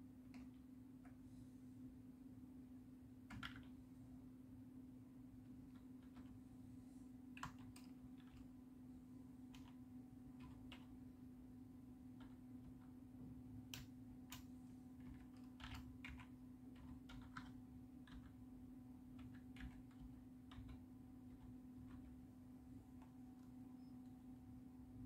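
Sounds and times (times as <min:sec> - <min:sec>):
keyboard keys clicking: 0:03.3 - 0:03.8, 0:07.4 - 0:08.5, 0:09.5 - 0:09.8, 0:10.4 - 0:10.9, 0:12.1 - 0:13.0, 0:13.7 - 0:18.4, 0:19.1 - 0:22.2.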